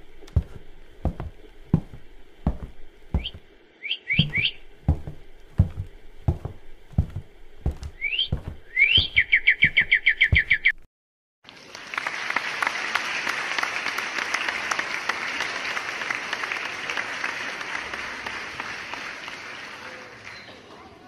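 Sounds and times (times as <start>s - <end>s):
footsteps walking: 0.0s - 3.6s, 4.2s - 10.8s
birds chirping: 3.1s - 5.1s, 7.9s - 10.8s.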